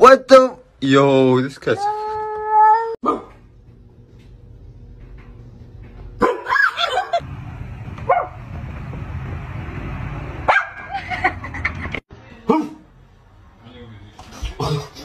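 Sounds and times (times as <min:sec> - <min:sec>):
dog barking: 0:03.0 - 0:03.4, 0:06.2 - 0:06.8, 0:08.1 - 0:08.4, 0:10.5 - 0:10.9.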